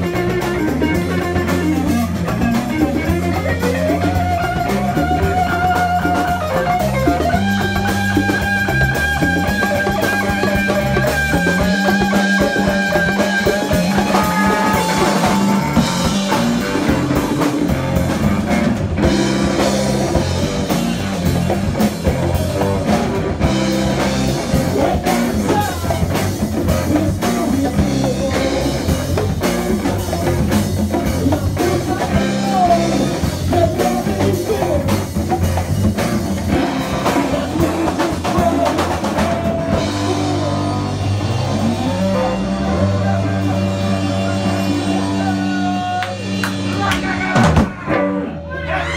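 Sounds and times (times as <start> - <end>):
congas: 0.0 - 47.9
rock band playing loudly: 0.0 - 48.9.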